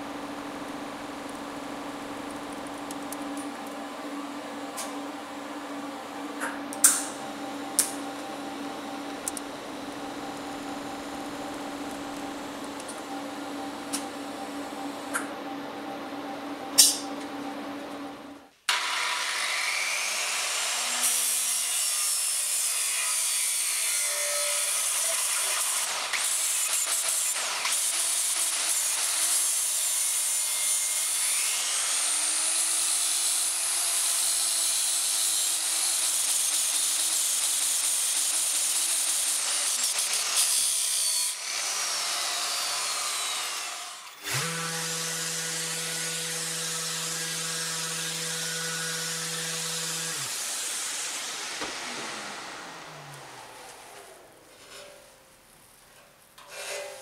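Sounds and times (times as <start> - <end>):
angle grinder grinding steel: 18.7 - 55.2
orbital sander humming: 44.2 - 54.4.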